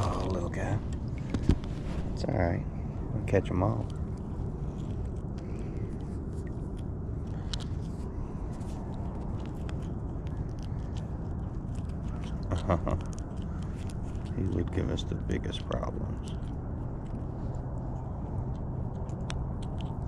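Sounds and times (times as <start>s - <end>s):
small clicks and scrapes: 0.0s - 2.2s, 3.2s - 20.0s
steady low rumble: 0.0s - 20.0s.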